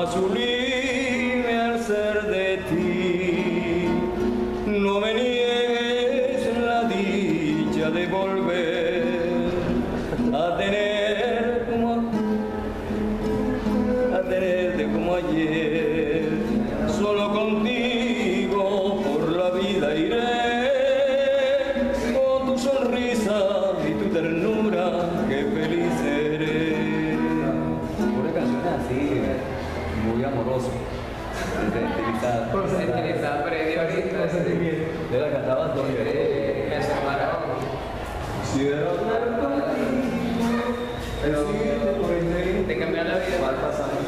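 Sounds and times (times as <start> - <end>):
man singing a slow ballad: 0.0 - 12.5, 13.8 - 27.9.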